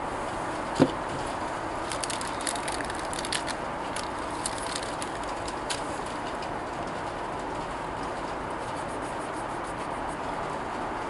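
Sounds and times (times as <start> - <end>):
plastic bag crinkling: 1.8 - 6.5.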